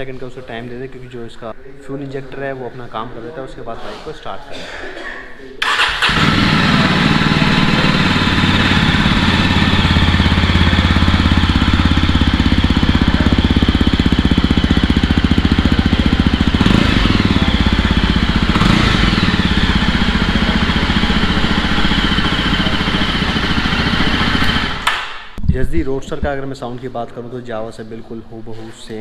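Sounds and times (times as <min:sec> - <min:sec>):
motorcycle engine idling: 0:05.6 - 0:24.8.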